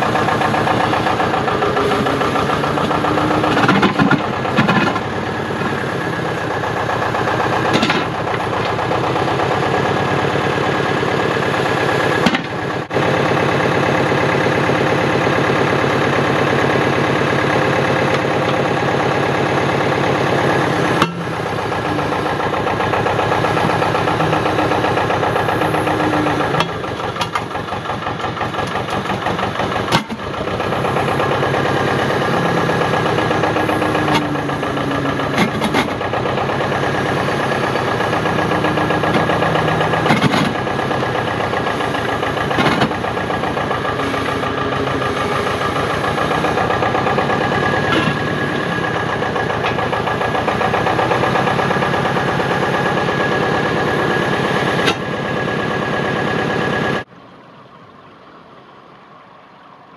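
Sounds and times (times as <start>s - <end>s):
dumper engine running under load: 0.0s - 59.9s.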